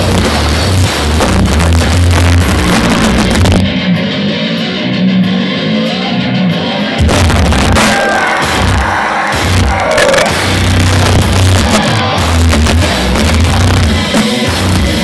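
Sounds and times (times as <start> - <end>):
electric guitar playing: 0.0 - 15.0
heavy metal band playing: 0.0 - 15.0.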